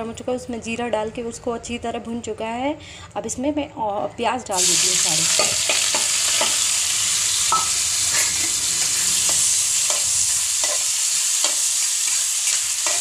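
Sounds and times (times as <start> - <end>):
onions sizzling in oil: 4.6 - 13.0
spatula scraping a pan: 8.2 - 13.0.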